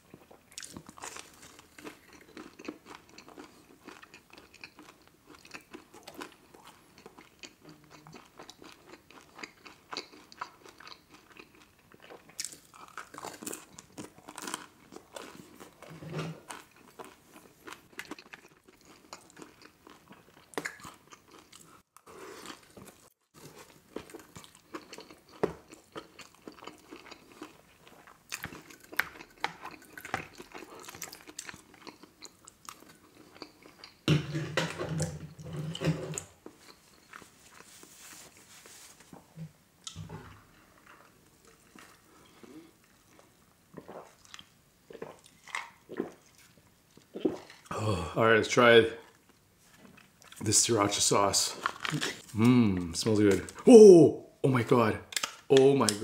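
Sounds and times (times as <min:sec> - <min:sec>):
man chewing and smacking: 0:00.0 - 0:34.1, 0:35.8 - 0:38.3, 0:40.8 - 0:47.7, 0:49.0 - 0:50.4.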